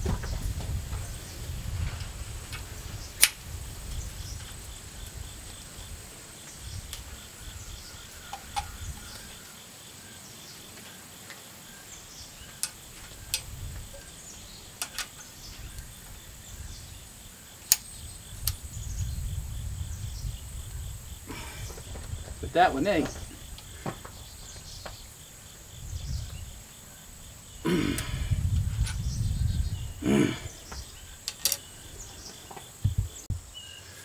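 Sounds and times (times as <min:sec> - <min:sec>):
insect chirring: 0:02.2 - 0:34.0
ramrod clicks and taps: 0:14.8 - 0:15.1, 0:31.2 - 0:31.6.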